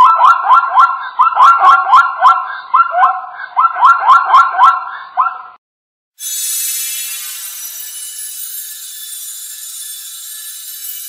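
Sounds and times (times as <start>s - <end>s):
zebra barking yelps: 0.0s - 5.6s.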